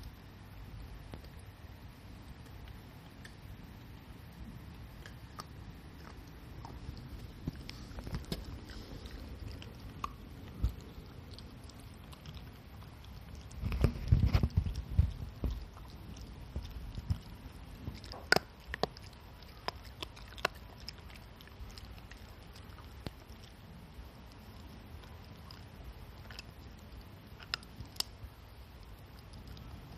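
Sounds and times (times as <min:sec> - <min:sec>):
dog gnawing a treat: 0:04.9 - 0:29.9.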